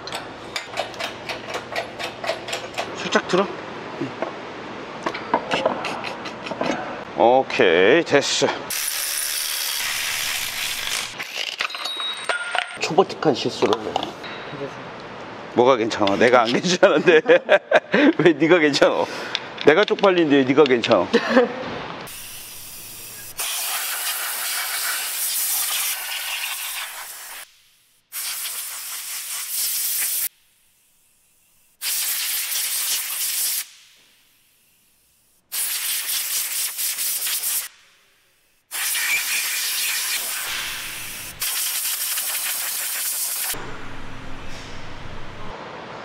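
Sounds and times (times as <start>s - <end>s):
compressed air blow gun hissing: 22.1s - 30.9s, 38.7s - 43.6s.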